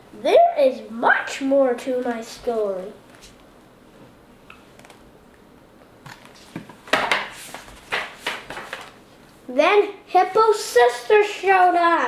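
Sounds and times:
book pages flipping: 0:02.8 - 0:03.5, 0:04.5 - 0:05.1, 0:06.0 - 0:09.0
paper swishes and rustles: 0:06.2 - 0:09.0.

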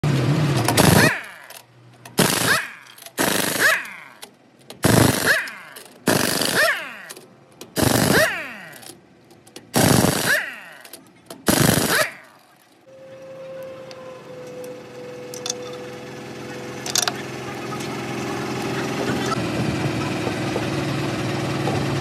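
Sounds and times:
impact wrench hammering: 0:00.6 - 0:09.0, 0:09.6 - 0:12.3.

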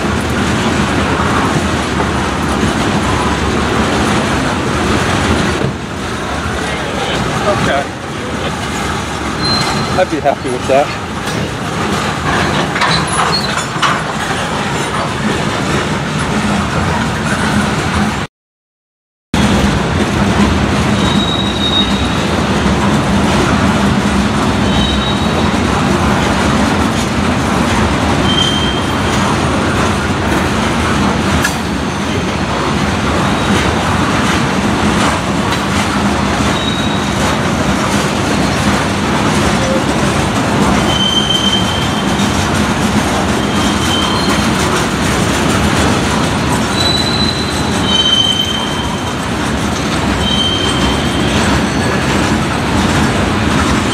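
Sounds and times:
freight train rumbling past: 0:00.0 - 0:18.3, 0:19.4 - 0:53.9
wheel clatter: 0:00.1 - 0:18.0
high-pitched wheel squeals: 0:09.4 - 0:10.8, 0:21.0 - 0:22.3, 0:24.6 - 0:25.6, 0:28.2 - 0:29.2, 0:36.5 - 0:37.1, 0:40.8 - 0:42.3, 0:43.3 - 0:44.6, 0:46.7 - 0:52.2.

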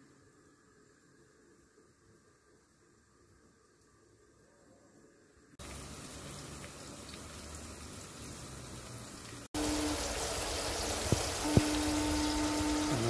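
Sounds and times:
pot sizzling and bubbling: 0:05.6 - 0:13.0
steady hum: 0:09.6 - 0:13.0.

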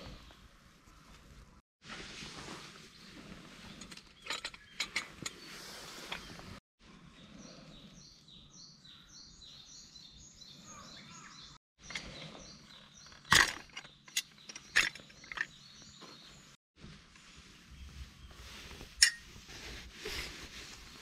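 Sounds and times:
small birds chirping: 0:02.9 - 0:16.6.

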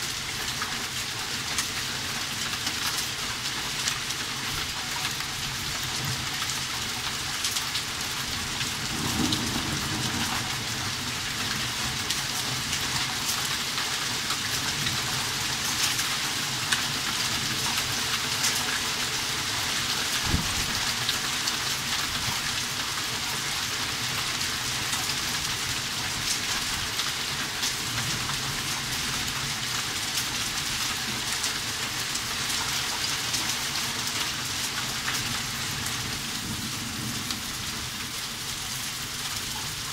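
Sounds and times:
heavy rain and hail: 0:00.0 - 0:39.9
low rumble of thunder: 0:08.4 - 0:12.1, 0:20.2 - 0:20.9, 0:36.0 - 0:38.1.

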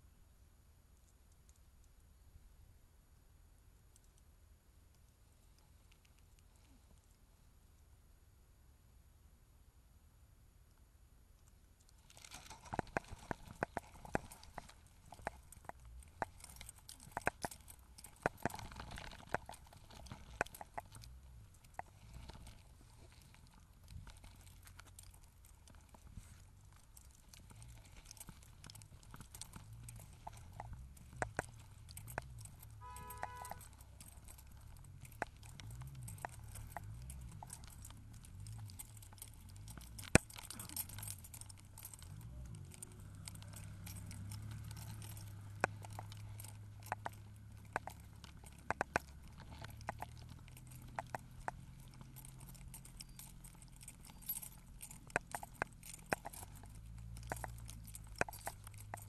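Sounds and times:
scattered clicks: 0:11.4 - 0:59.0
light metal jingling: 0:12.0 - 0:59.0
short beep: 0:32.8 - 0:33.6.

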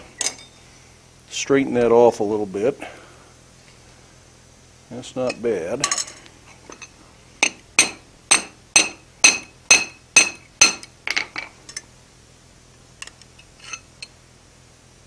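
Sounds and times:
hammer striking hot steel on anvil: 0:07.4 - 0:11.5
faint metal clinks: 0:10.2 - 0:11.9.

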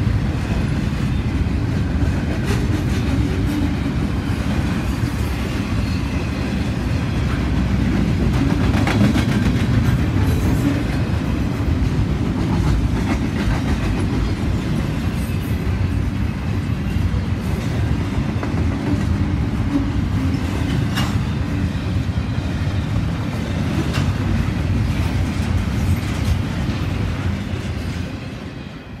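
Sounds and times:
train wheels rumbling on rails: 0:00.0 - 0:29.0
sharp clicks of rail wheels: 0:07.7 - 0:11.0, 0:20.3 - 0:21.4, 0:23.3 - 0:28.1.

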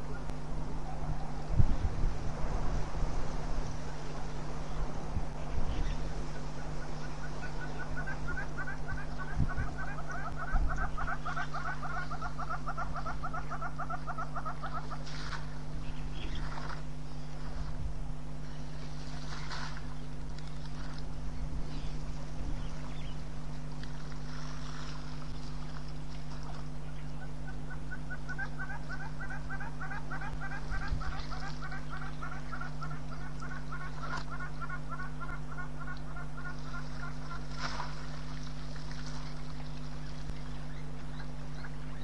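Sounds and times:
steady low hum: 0:00.0 - 0:42.0
bird calling repeated notes: 0:05.4 - 0:17.0, 0:26.6 - 0:37.7.

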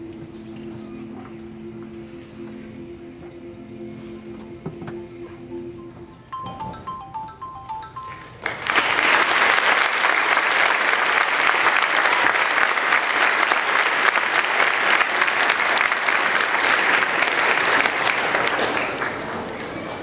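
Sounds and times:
music piece ending: 0:01.1 - 0:09.5
audience applauding: 0:08.1 - 0:20.0.

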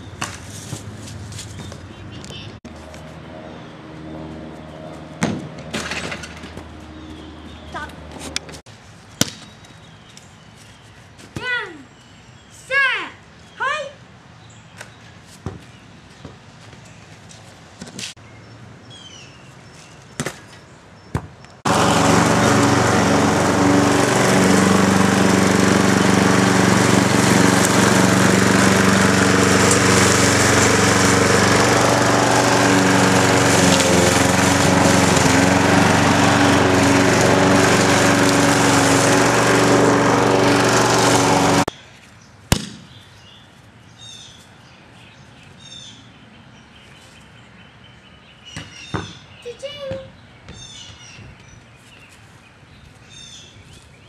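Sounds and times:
birds chirping: 0:01.4 - 0:02.6, 0:06.5 - 0:17.3, 0:18.2 - 0:54.0
small engine running: 0:21.7 - 0:41.7.

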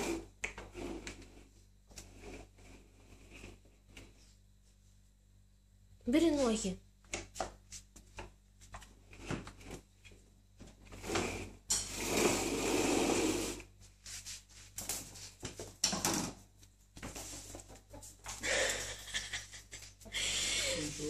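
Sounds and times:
scraping on floor: 0:00.0 - 0:04.4, 0:10.6 - 0:16.4
animals scuffling on tiled floor: 0:13.8 - 0:15.8, 0:16.4 - 0:20.2.

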